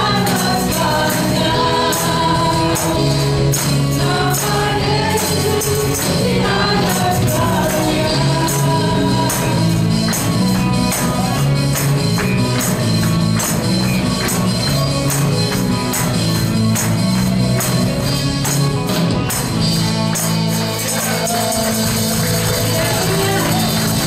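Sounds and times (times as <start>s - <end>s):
gospel worship band music: 0.0s - 24.0s
tambourine jingling: 0.0s - 24.0s.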